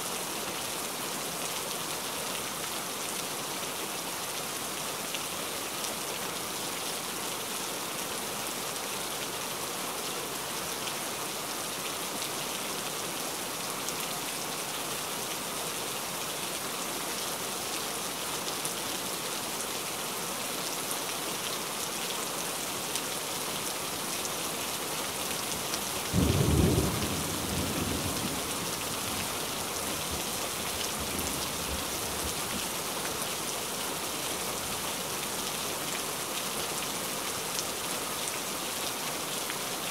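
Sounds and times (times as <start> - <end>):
heavy rain falling: 0.1 - 39.9
low clap of thunder: 26.2 - 28.4.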